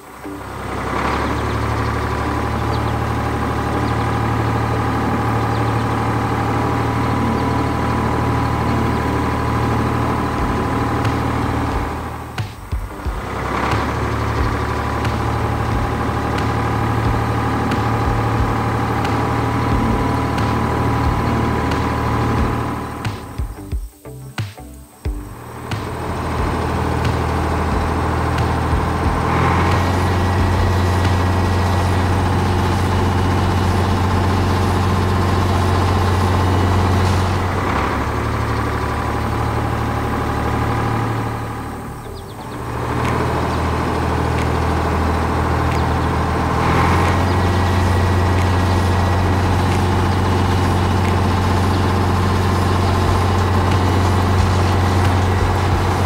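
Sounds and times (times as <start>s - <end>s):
tractor engine humming: 0.0s - 56.0s.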